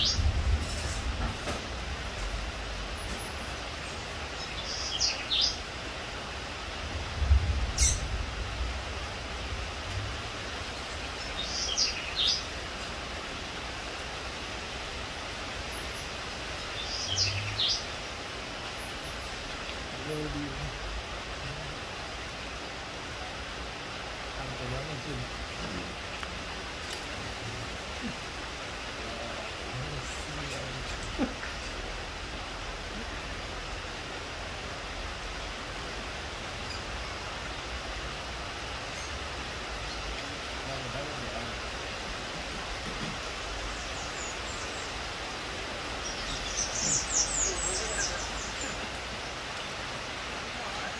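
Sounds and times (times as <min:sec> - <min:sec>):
outdoor background hiss: 0:00.0 - 0:50.9
small bird chirping: 0:07.8 - 0:08.2, 0:46.0 - 0:48.9.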